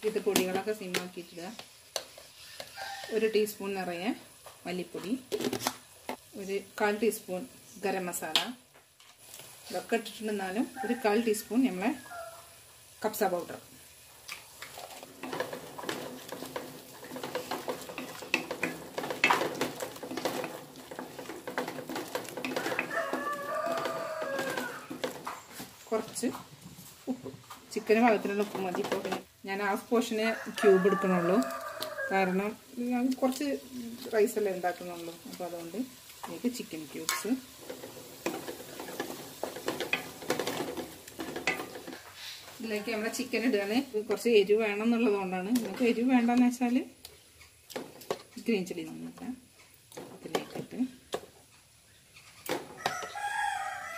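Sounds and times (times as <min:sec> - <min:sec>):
faint sizzle: 0:00.0 - 0:53.9
wooden spatula scraping a pan: 0:14.6 - 0:46.5, 0:49.5 - 0:53.6.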